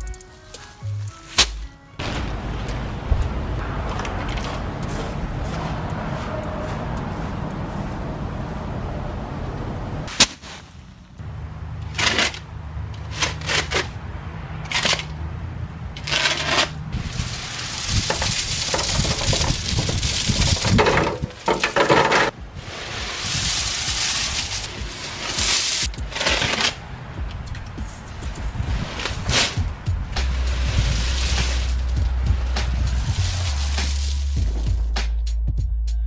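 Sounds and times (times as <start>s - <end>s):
rocks pouring and rattling: 17.0s - 26.8s, 28.8s - 34.7s.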